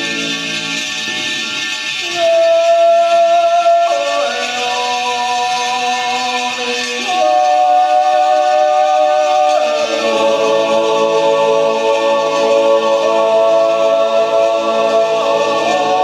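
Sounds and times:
coins whirring in bowls: 0.0 - 16.0
male choir yodeling: 2.0 - 16.0.

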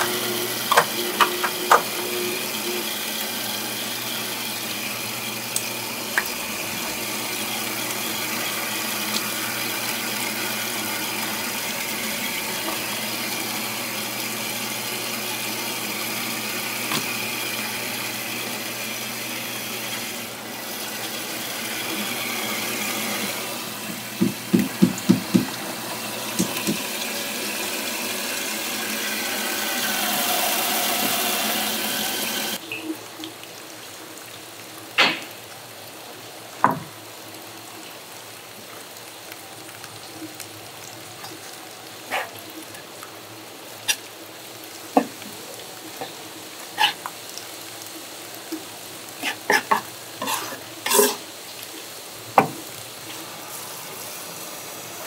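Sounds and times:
tap water running into sink: 0.0 - 32.6, 36.6 - 37.0, 43.9 - 46.2, 48.4 - 51.2, 52.3 - 53.3.

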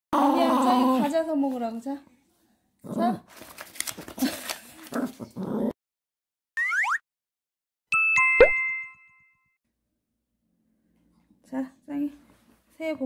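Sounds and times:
bright chime dings: 8.0 - 9.5.

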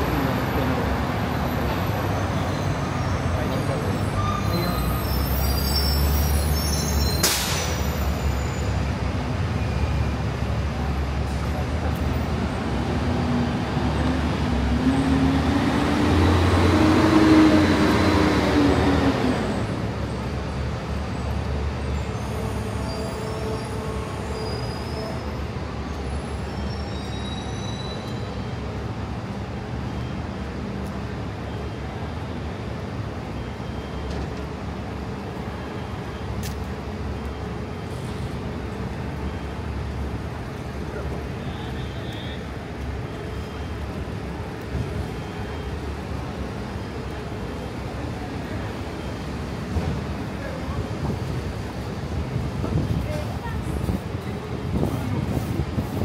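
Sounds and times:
street traffic hum: 0.0 - 56.0
short sharp hiss: 7.2 - 7.8.

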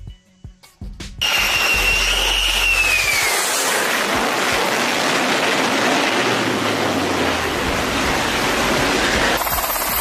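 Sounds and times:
high whine dropping in pitch: 1.2 - 5.0
loud engine roar: 3.1 - 9.4.

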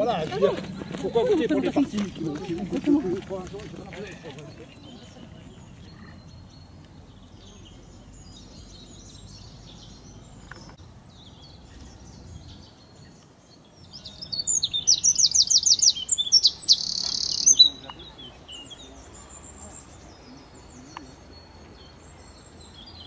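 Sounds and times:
faint distant bird chirps: 3.9 - 23.0
wren singing trill: 4.7 - 23.0.

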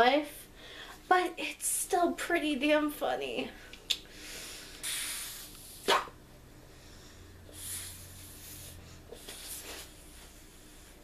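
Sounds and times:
person blowing into whoopee cushion: 4.7 - 6.2, 7.5 - 11.0.

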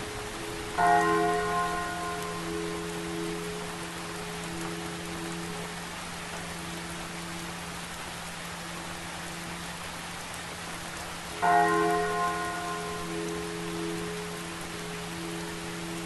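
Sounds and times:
steady rain: 0.0 - 16.0
large church bell ringing: 0.7 - 5.7, 11.4 - 16.0.

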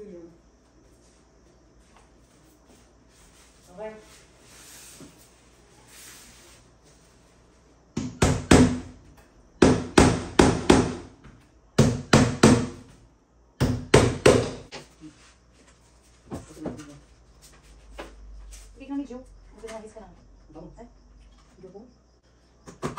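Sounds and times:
hammer driving nails into wood: 9.6 - 11.1.

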